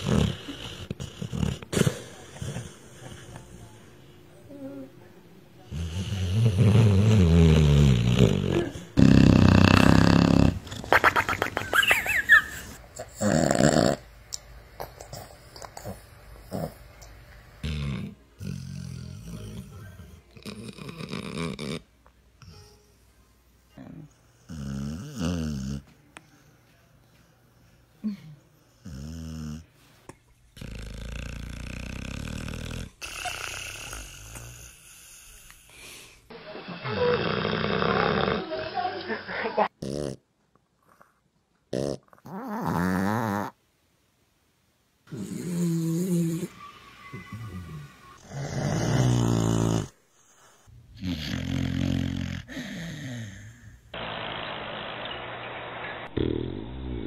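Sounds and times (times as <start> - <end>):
dogs snoring: 0.0 - 3.9, 5.7 - 22.6, 23.8 - 25.9, 28.6 - 29.7, 30.5 - 38.8, 39.6 - 40.2, 40.8 - 43.6, 45.1 - 54.0, 56.1 - 57.0.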